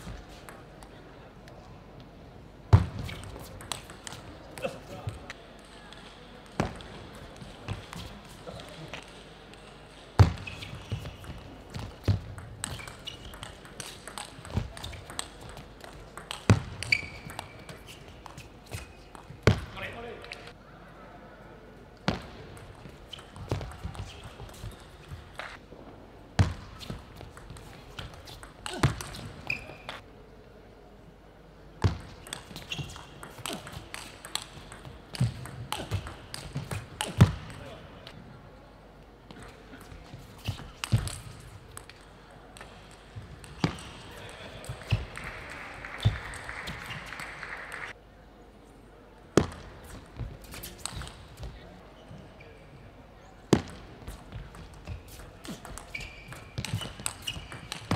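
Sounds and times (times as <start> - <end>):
short high squeaks: 29.4 - 30.0, 55.8 - 57.7.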